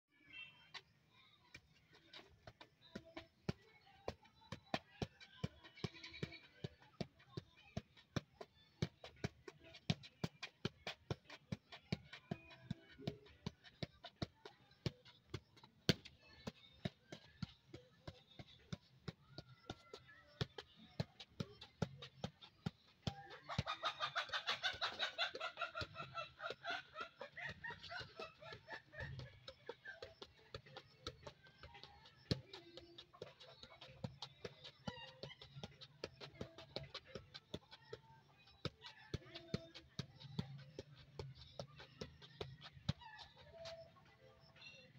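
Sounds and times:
foot tapping a football: 0:01.5 - 0:44.9.

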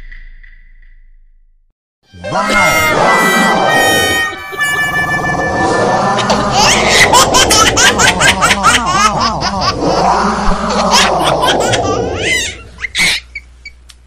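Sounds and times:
laughter: 0:06.2 - 0:09.8, 0:10.7 - 0:12.3.

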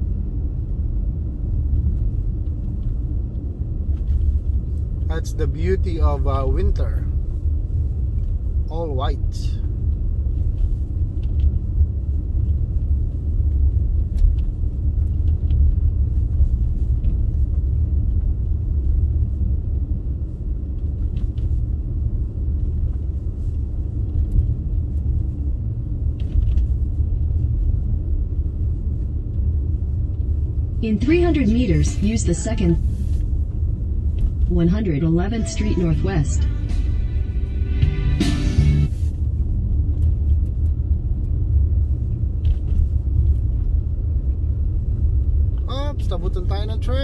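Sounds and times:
car interior road rumble: 0:00.0 - 0:47.0.

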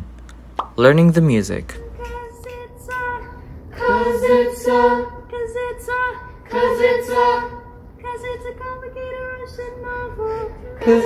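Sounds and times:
a cappella group singing harmony: 0:02.0 - 0:11.0.

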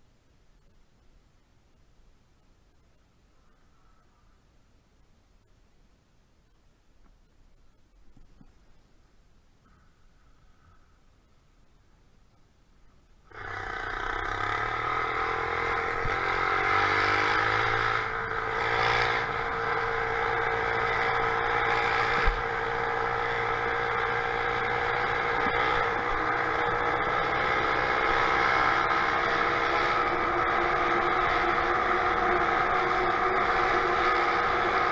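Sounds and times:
small engine running: 0:13.3 - 0:34.9.

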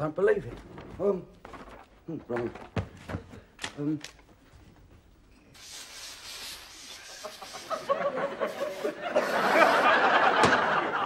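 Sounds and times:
studio audience laughing: 0:07.1 - 0:11.0.

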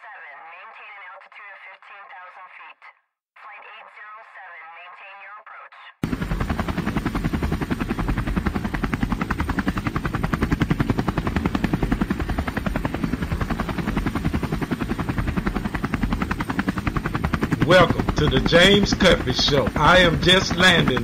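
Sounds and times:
rhythmic chopping of blades: 0:06.0 - 0:21.0.

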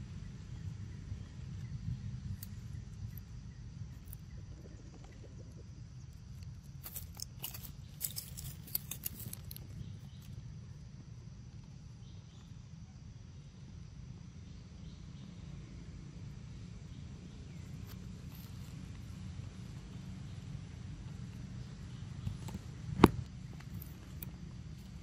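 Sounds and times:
steady low rumble: 0:00.0 - 0:10.8
dry leaves crackling under steps: 0:06.8 - 0:09.7.

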